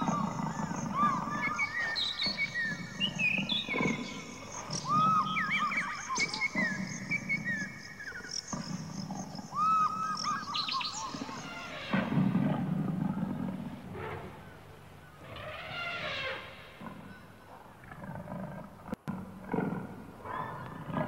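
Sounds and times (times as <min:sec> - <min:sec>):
big cat growling: 0:00.0 - 0:09.6, 0:10.2 - 0:14.6, 0:16.8 - 0:21.0
short arching bird calls: 0:00.0 - 0:12.4.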